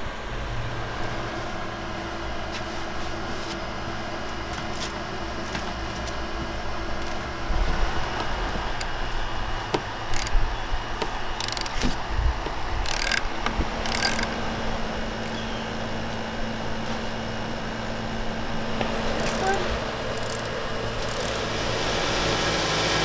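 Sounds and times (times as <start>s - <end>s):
socket wrench ratcheting: 10.0s - 10.4s, 11.4s - 12.0s, 12.8s - 14.3s, 19.2s - 21.4s.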